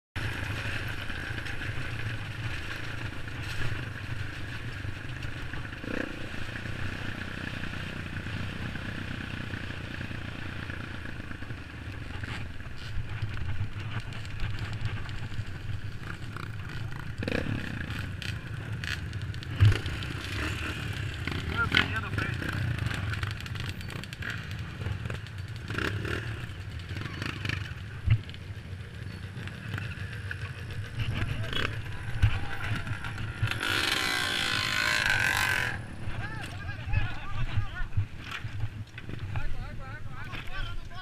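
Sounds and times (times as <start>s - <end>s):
dirt bike engine running: 0.2s - 41.0s.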